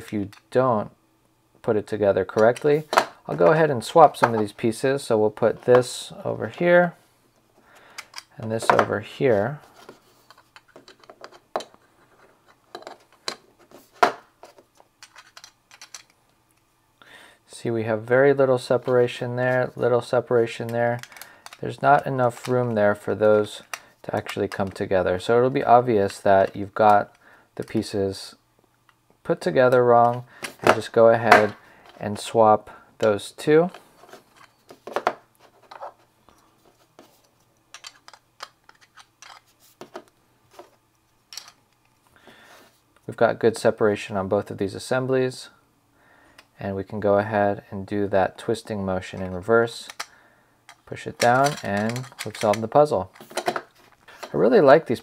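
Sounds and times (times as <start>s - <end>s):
plastic puzzle blocks clicking: 15.0s - 16.1s, 37.7s - 39.4s, 50.8s - 53.6s.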